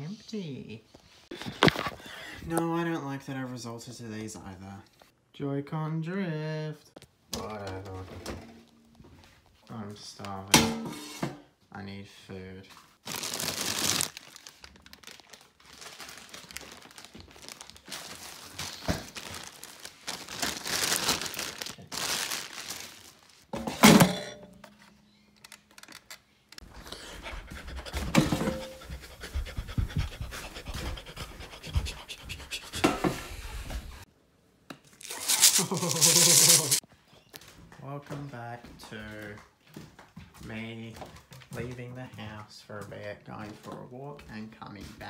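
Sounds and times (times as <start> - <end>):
plastic bags crinkling: 13.0 - 23.5, 35.0 - 36.8.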